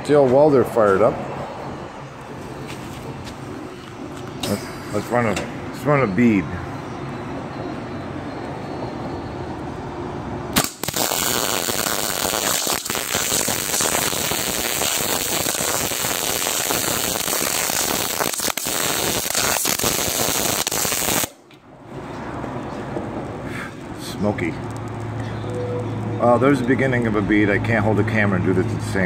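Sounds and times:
steady background noise: 0.0s - 29.0s
arc welder crackling: 10.6s - 21.6s.

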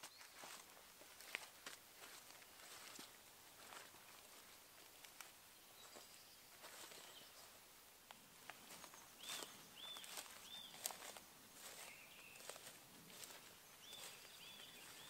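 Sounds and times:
footsteps in dry leaves: 0.0s - 7.6s, 8.4s - 15.0s
songbird calling: 5.5s - 7.6s, 8.5s - 15.0s.

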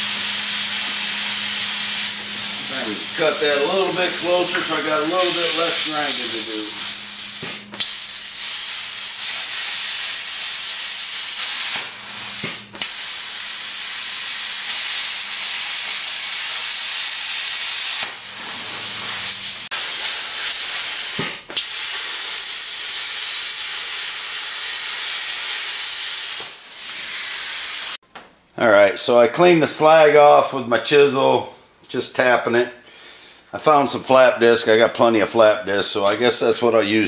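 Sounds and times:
plasma cutter hissing: 0.0s - 28.0s.

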